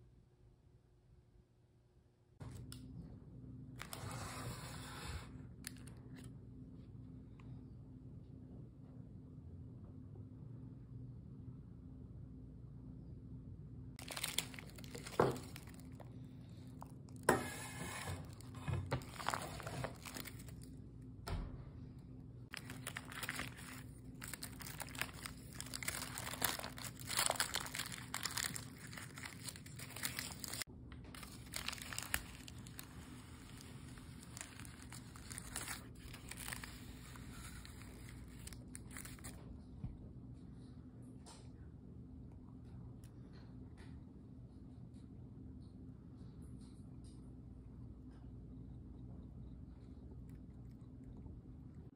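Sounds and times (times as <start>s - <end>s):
parchment paper crinkling: 14.0s - 17.4s, 18.0s - 20.8s, 22.5s - 39.5s.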